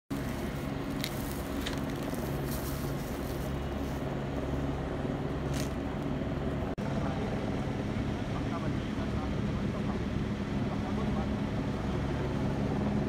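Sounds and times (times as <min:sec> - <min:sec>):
hiss-like rustles: 0:00.1 - 0:04.2
truck engines idling: 0:00.1 - 0:13.0.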